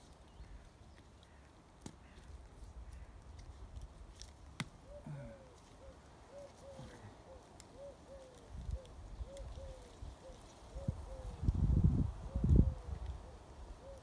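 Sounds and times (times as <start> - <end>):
dove cooing: 4.8 - 11.5, 12.2 - 14.0.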